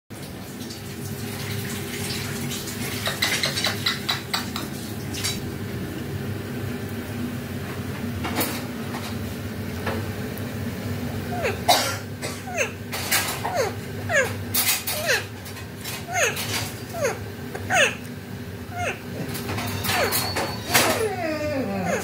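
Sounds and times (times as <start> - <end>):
steady low hum: 5.3 - 22.0.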